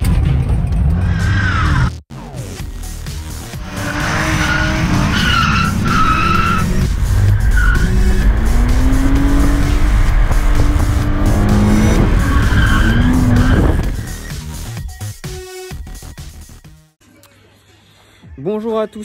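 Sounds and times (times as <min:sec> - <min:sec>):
music: 0:00.0 - 0:19.0
car engine revving: 0:03.4 - 0:14.8
tyres squealing: 0:03.8 - 0:09.6, 0:11.4 - 0:14.3.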